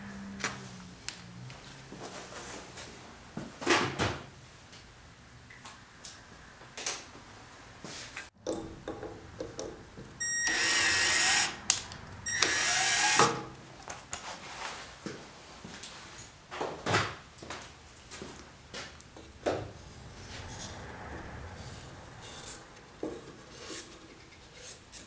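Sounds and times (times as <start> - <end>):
drill motor whine: 10.2 - 11.6, 12.3 - 13.4.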